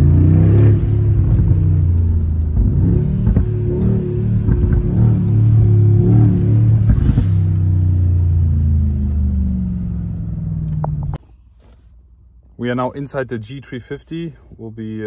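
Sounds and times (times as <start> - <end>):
exhaust cracks: 0.0 - 11.3
car engine while driving: 0.0 - 13.9.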